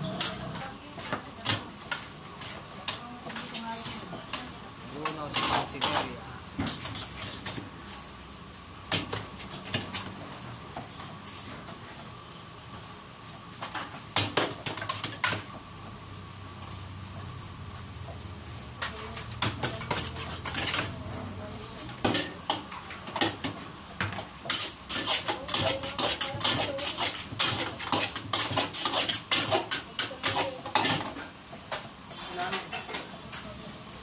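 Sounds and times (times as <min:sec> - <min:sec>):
ladle scraping and clanking on wok: 0:00.0 - 0:08.1, 0:18.8 - 0:21.2, 0:21.8 - 0:33.6.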